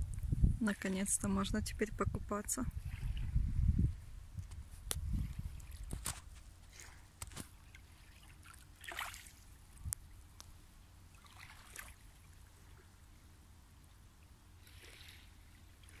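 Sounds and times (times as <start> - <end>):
small waves lapping on pebbles: 5.0 - 9.8, 11.1 - 13.0, 14.6 - 16.0.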